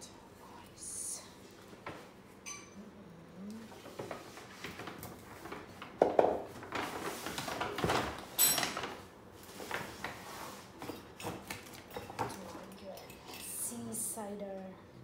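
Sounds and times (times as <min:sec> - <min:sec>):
paper gift bag rustling: 0:06.6 - 0:08.2.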